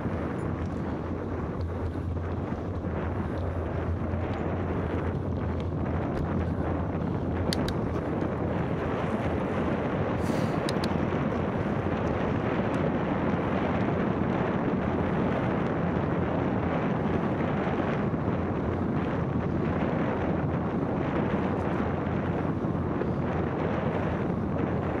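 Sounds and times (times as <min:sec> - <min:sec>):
wind rushing over microphone: 0:00.0 - 0:25.0
light ticks: 0:07.5 - 0:08.0, 0:10.6 - 0:11.0.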